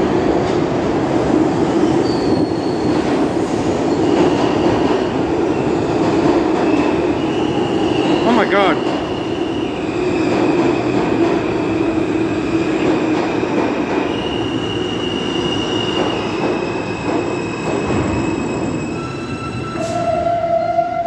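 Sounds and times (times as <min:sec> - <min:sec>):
subway train wheels rumbling: 0:00.0 - 0:21.0.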